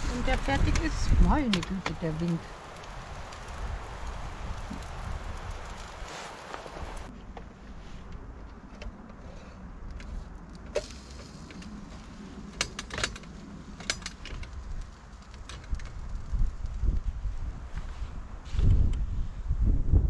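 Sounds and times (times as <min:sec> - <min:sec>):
wind buffeting microphone: 0:00.0 - 0:07.1, 0:14.4 - 0:20.0.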